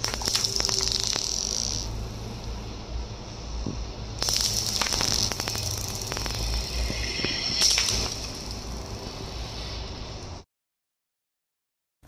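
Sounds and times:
glass marbles clacking: 0.0 - 1.9, 4.2 - 8.7.

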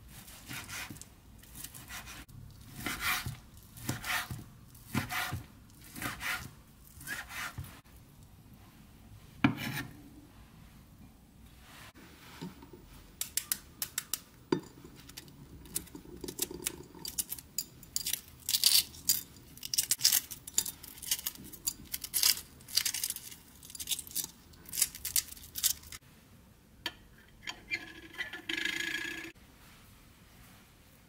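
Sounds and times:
egg shells cracking and peeling: 15.1 - 26.0.

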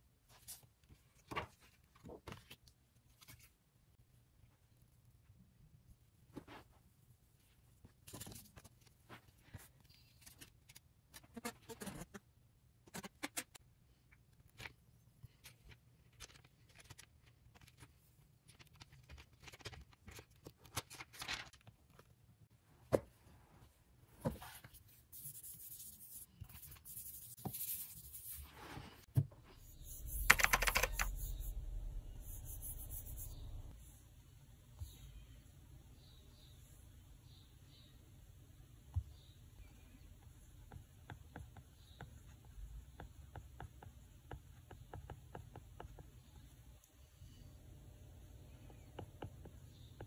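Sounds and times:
low steady hum: 29.2 - 40.5.

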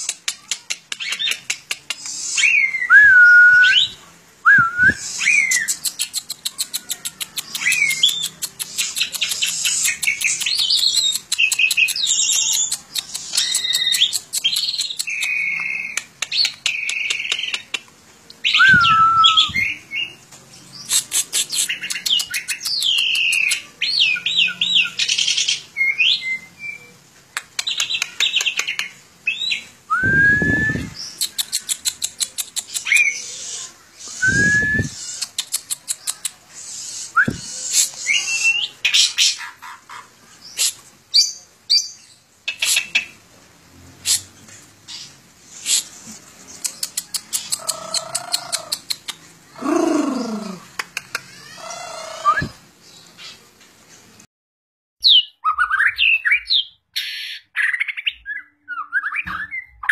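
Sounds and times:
starling singing: 0.9 - 17.7, 18.4 - 26.9, 27.6 - 43.2, 44.0 - 50.8.

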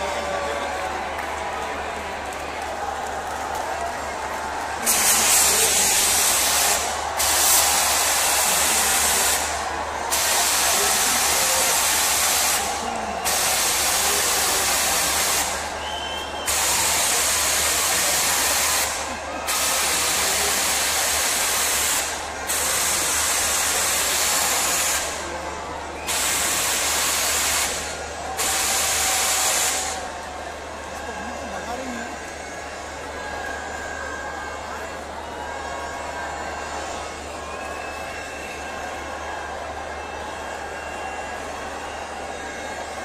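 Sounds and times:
firework fountain hissing: 4.8 - 30.1.

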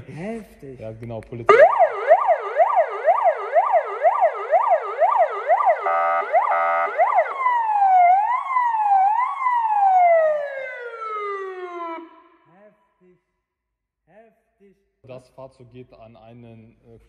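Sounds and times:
electronic siren: 1.5 - 12.4.

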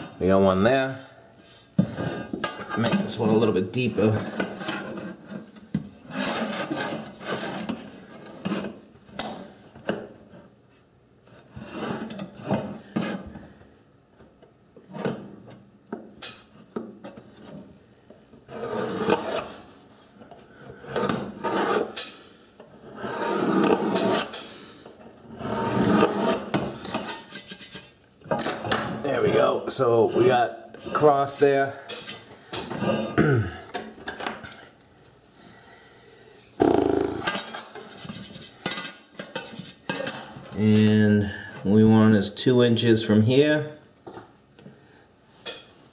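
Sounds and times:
scriber scratching metal pan: 25.3 - 28.0, 37.0 - 40.2.

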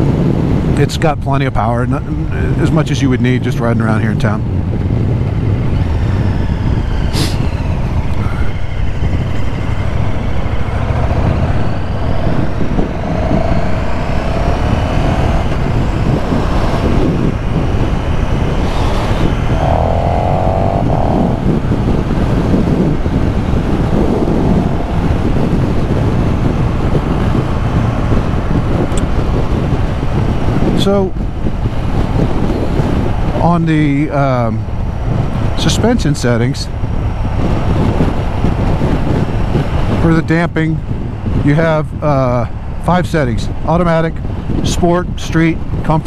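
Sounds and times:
road and wind rumble: 0.0 - 46.0
motorcycle engine running: 7.6 - 30.6.

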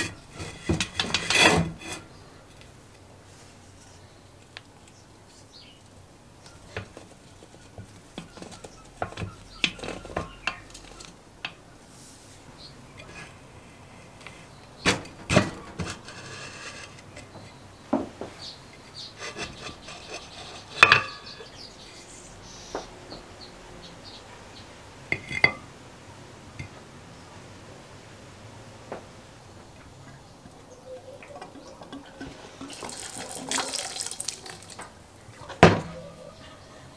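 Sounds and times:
metal knocks and clunks: 0.0 - 2.0, 14.8 - 16.2, 35.4 - 36.1.

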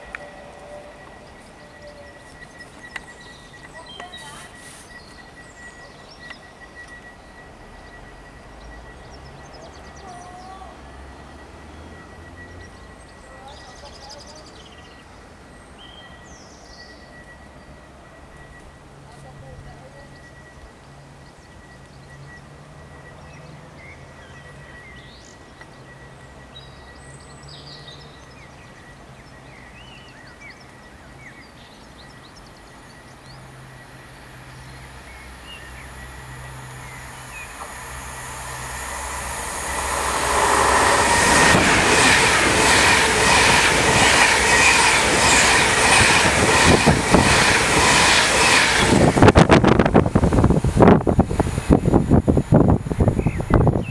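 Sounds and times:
train passing: 0.0 - 53.9
faint bird chirps: 0.2 - 41.0.

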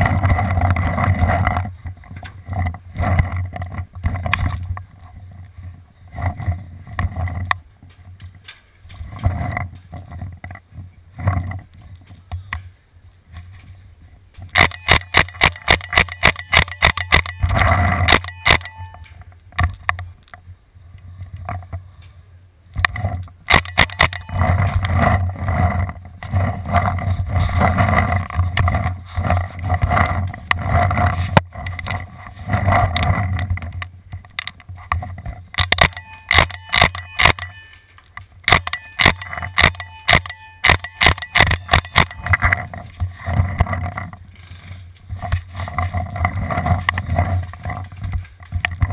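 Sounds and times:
steady dense noise: 0.0 - 48.9
paintball markers firing: 14.6 - 18.7, 38.5 - 42.4.

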